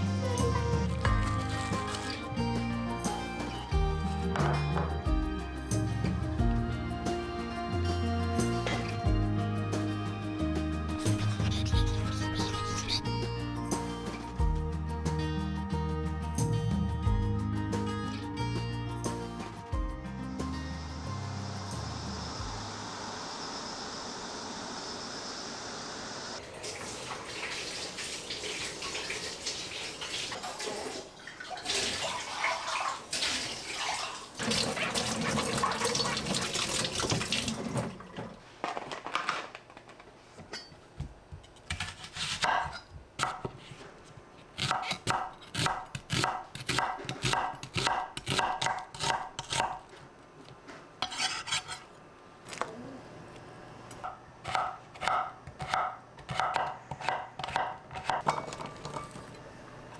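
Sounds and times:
dishes and utensils clinking: 58.2s - 59.4s.

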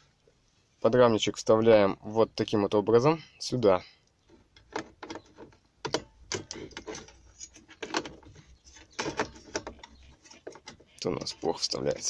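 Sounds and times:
metal frame scraping plastic: 6.3s - 12.0s.

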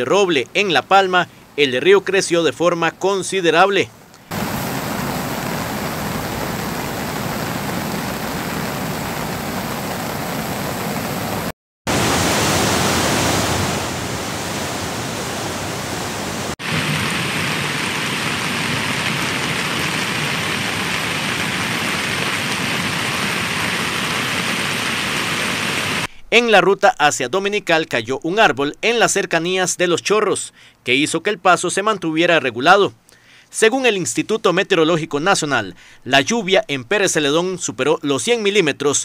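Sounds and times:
flooded river rushing: 4.3s - 28.8s.

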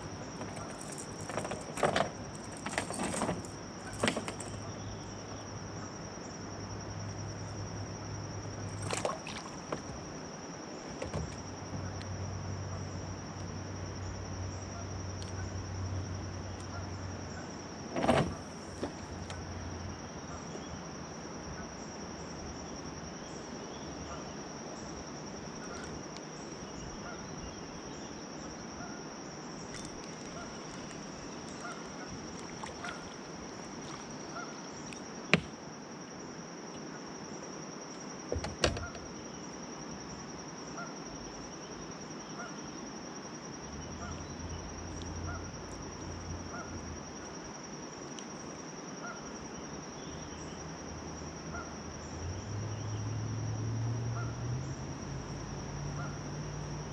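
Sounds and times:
high insect drone: 0.0s - 56.9s
sharp knocks: 35.4s - 35.6s.

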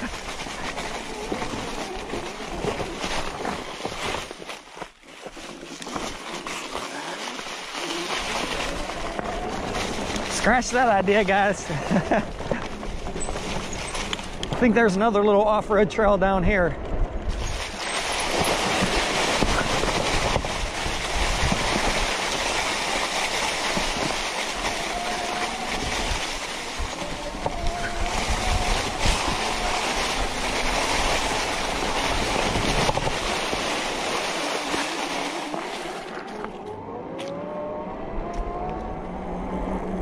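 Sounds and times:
tires rolling over leaves and dirt: 0.0s - 40.0s
wind noise: 15.9s - 40.0s.

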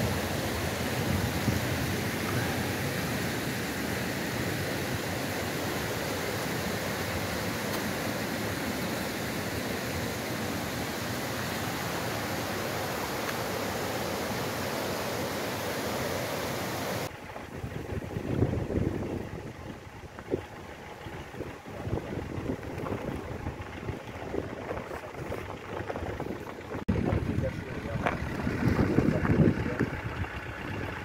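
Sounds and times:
waterfall rushing: 0.0s - 17.1s.

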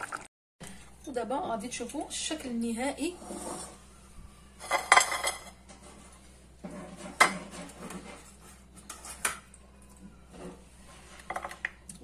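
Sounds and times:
metal utensil scraping a pot: 3.0s - 3.8s, 4.6s - 9.4s.

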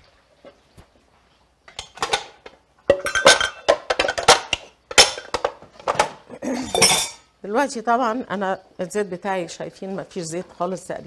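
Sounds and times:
glass and kitchenware clinking: 2.9s - 7.3s.

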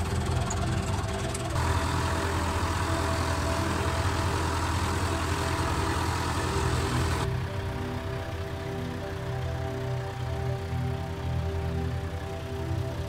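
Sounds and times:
tractor driving on gravel: 0.0s - 10.4s
tractor diesel engine running: 0.0s - 13.0s.

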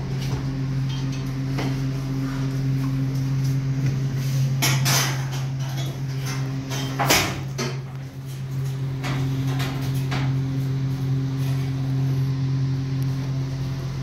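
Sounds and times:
sharp knocks and clatters: 4.6s - 7.9s.

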